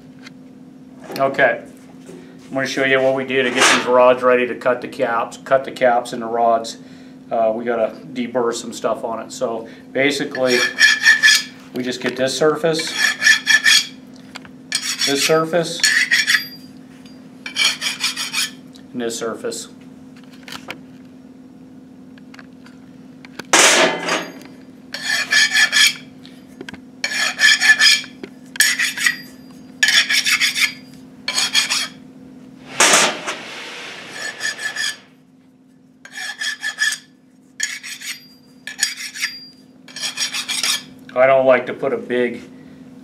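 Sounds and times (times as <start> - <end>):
hand file rasping on metal: 10.4 - 11.5, 12.8 - 13.9, 14.7 - 16.6, 17.5 - 18.6, 24.9 - 26.0, 27.0 - 32.0, 34.0 - 35.1, 36.0 - 40.9.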